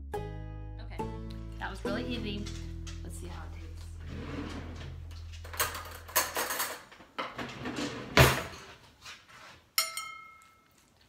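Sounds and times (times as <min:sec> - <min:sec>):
dishes scraping and knocking: 0:04.0 - 0:08.8
fork clinking on a bowl: 0:09.8 - 0:10.9.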